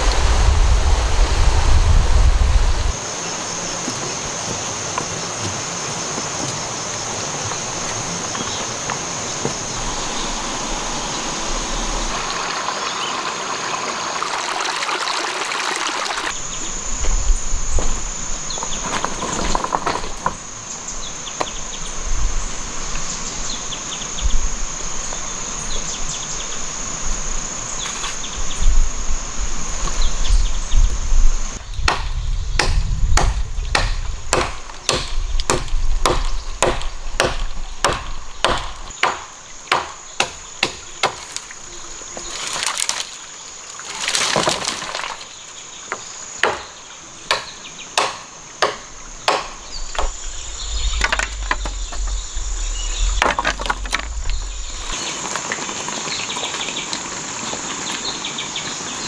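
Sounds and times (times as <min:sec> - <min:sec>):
insect drone: 0:00.0 - 0:59.0
blade chopping wooden branch: 0:31.8 - 0:41.5, 0:44.0 - 0:45.2, 0:46.4 - 0:50.2.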